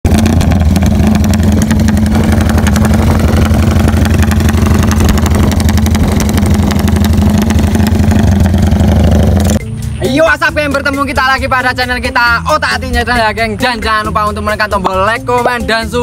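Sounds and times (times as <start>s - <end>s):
motorcycle engine running: 0.0s - 9.8s.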